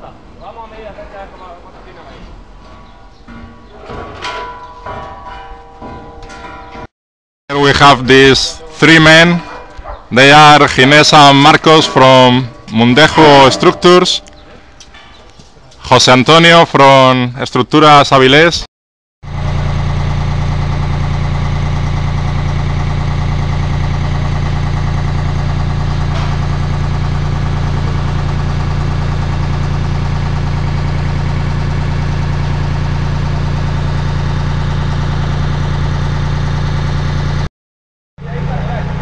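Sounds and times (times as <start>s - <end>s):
machinery engine humming: 7.6s - 15.8s, 19.3s - 37.5s, 38.2s - 39.0s.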